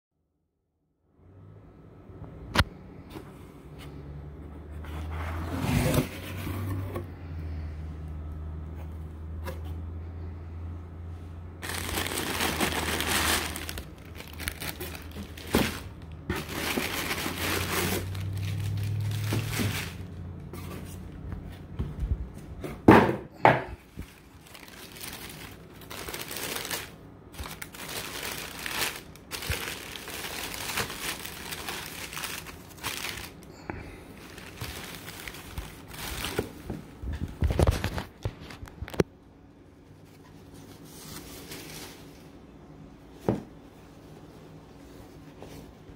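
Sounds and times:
low steady hum: 1.0s - 45.9s
tissue paper rustling: 11.6s - 21.0s, 23.8s - 33.5s, 34.2s - 36.6s, 40.1s - 42.3s.

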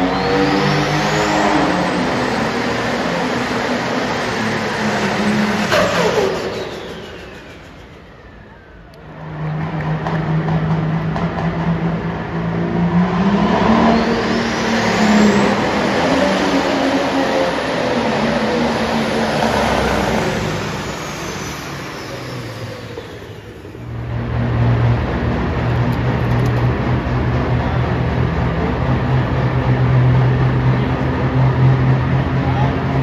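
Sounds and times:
high engine whistle: 0.0s - 2.6s, 4.8s - 9.4s, 13.3s - 17.5s
tractor engine at full load: 0.0s - 33.0s
tractor engine steady drone: 0.0s - 33.0s.

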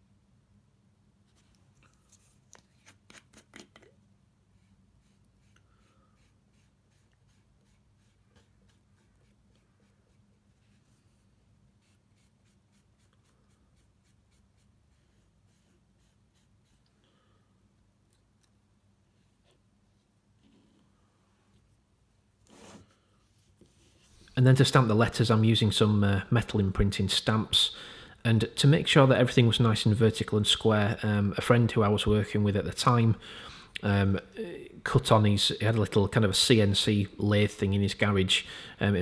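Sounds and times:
cotton bud rubbing on paper: 4.5s - 17.0s.

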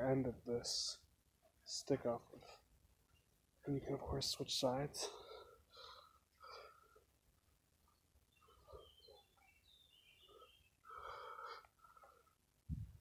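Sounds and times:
man breathing: 5.0s - 7.2s, 10.2s - 12.4s.

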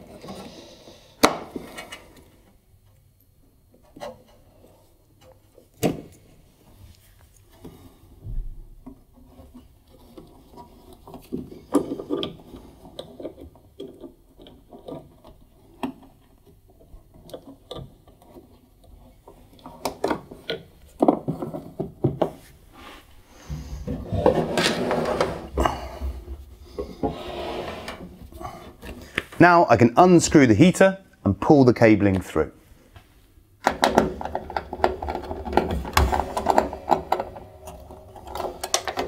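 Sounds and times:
rubbing scrape: 22.4s - 25.6s, 26.8s - 28.7s.

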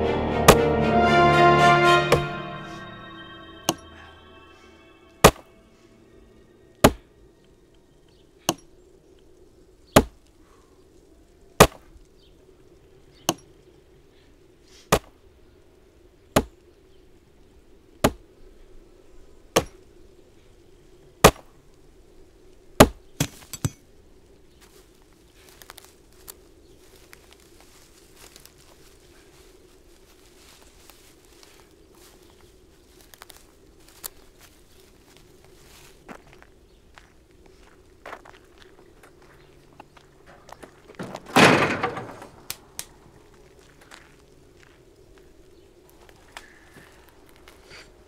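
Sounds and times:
axe chopping tree trunk: 6.8s - 7.1s, 10.0s - 10.2s, 18.0s - 18.2s.

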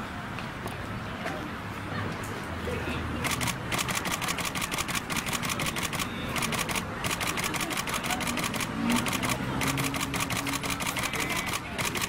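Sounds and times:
camera shutters firing in bursts: 3.2s - 12.0s.

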